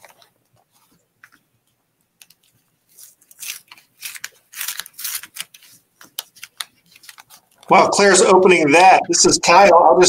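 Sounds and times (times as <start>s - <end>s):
paper envelope rustling: 0.0s - 7.7s.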